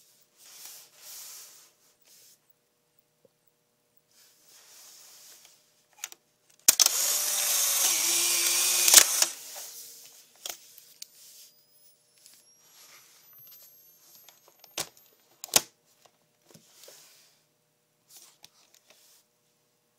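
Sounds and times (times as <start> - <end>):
sharp clicks: 6.7 - 7.1, 7.8 - 9.4
camera shutter click: 6.7 - 9.4
camera motor whirring: 6.7 - 9.8
flash recharge whine: 6.7 - 15.2.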